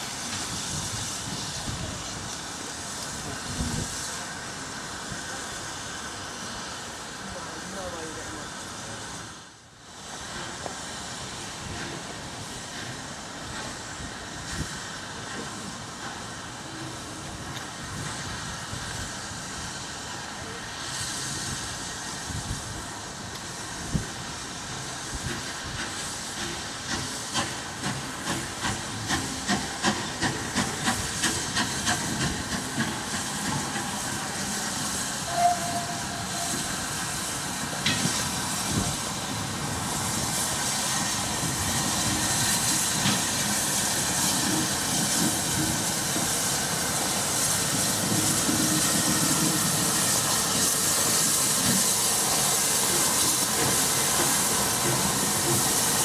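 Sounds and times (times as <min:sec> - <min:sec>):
hiss of steam: 0:00.0 - 0:56.0
steam locomotive exhaust beats: 0:00.0 - 0:56.0
steam whistle: 0:35.2 - 0:36.8.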